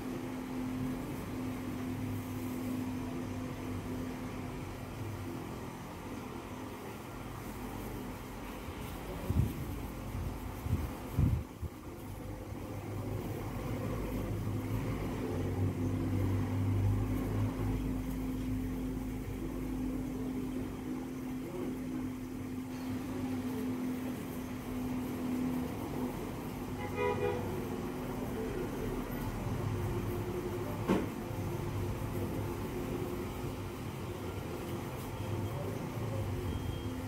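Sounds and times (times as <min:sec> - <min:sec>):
low mechanical hum: 0:00.0 - 0:37.0
short horn toot: 0:26.7 - 0:27.6.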